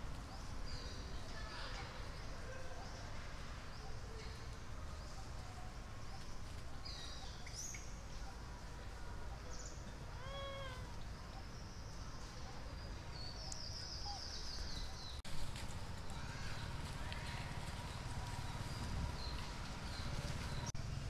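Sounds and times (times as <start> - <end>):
macaque coo: 10.2 - 10.9.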